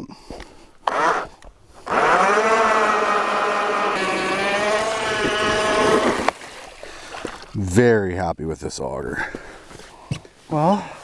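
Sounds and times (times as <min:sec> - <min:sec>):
electric ice auger drilling: 0:00.8 - 0:06.4.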